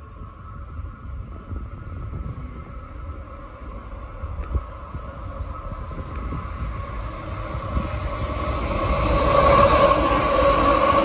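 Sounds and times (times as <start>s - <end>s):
diesel locomotive and rail rumble: 0.0s - 11.0s
locomotive whine: 0.0s - 11.0s.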